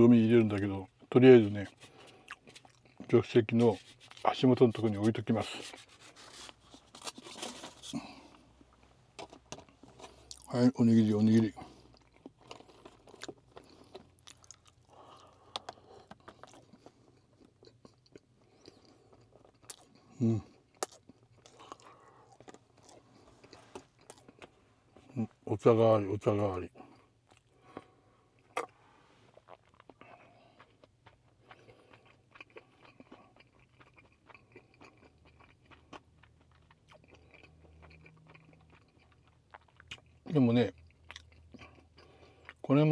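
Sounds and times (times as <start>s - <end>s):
man chewing food: 0.9s - 10.5s, 11.2s - 25.2s, 26.8s - 42.7s.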